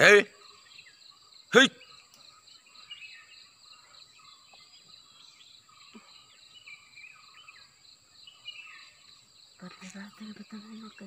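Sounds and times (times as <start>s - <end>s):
bird chirps: 0.0s - 11.0s
insects droning: 0.0s - 11.0s.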